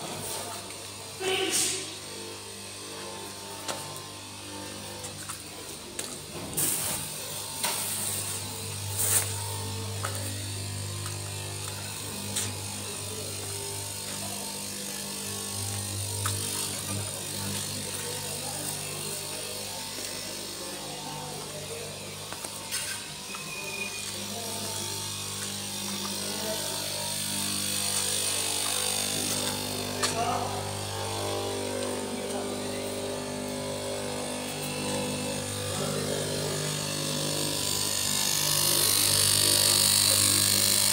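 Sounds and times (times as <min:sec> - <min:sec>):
cloth cutting machine hissing: 0:00.0 - 0:40.9
electric machine hum: 0:00.0 - 0:40.9.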